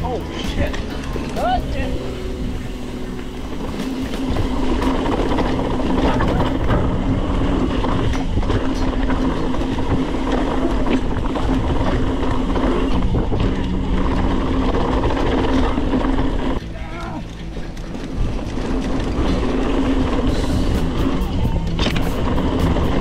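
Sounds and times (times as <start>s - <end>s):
bike tyres rumbling on dirt: 0.0s - 23.0s
buzzing hum: 0.0s - 23.0s
wind on microphone: 1.9s - 16.6s.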